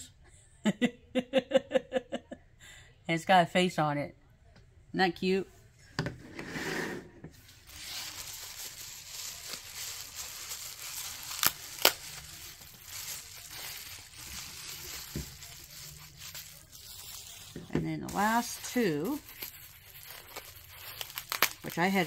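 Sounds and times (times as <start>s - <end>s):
bubble wrap crinkling: 7.4s - 22.0s.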